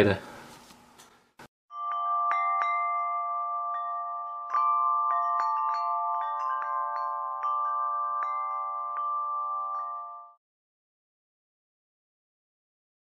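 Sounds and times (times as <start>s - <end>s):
wind chimes ringing: 1.7s - 10.4s.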